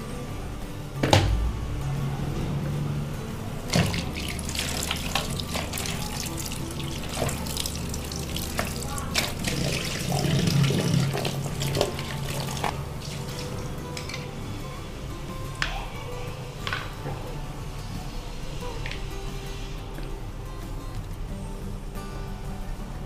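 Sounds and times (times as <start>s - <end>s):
tap water running: 3.6s - 14.4s
water splashing: 3.7s - 14.3s.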